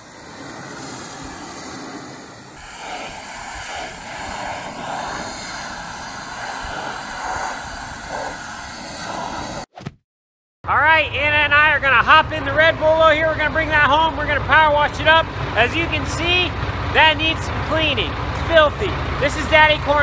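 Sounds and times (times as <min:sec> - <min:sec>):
pressure washer spraying metal: 0:00.0 - 0:09.7.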